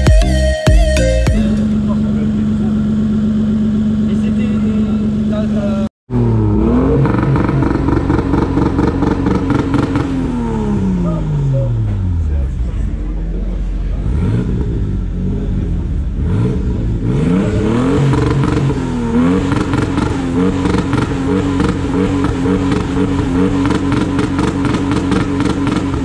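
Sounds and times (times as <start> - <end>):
car engine idling and revving: 0.0 - 26.0.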